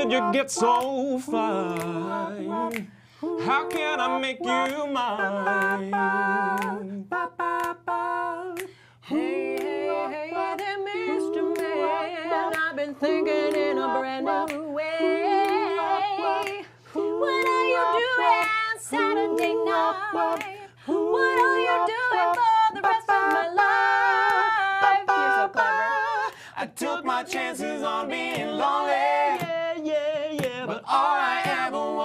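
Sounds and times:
people singing in harmony: 0:00.0 - 0:32.0.

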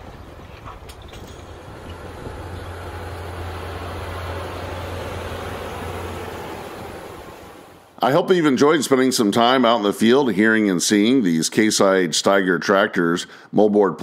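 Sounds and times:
rushing noise: 0:00.0 - 0:08.0
tractor diesel engine hum: 0:00.0 - 0:08.2.

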